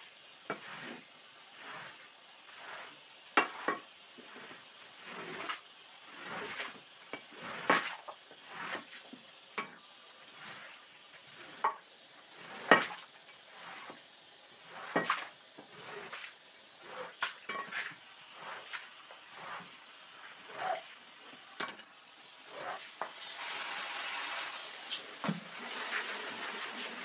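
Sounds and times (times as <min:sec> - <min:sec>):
scraper swishing on wet rug: 0:01.6 - 0:09.1, 0:12.3 - 0:14.0, 0:14.6 - 0:20.9.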